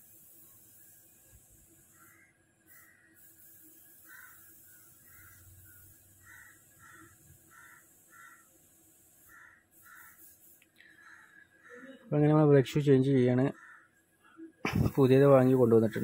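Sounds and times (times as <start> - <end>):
low hiss: 0.0 - 10.8, 14.6 - 16.0
crow cawing: 2.0 - 3.3, 4.0 - 8.5, 9.2 - 12.0, 13.5 - 14.0.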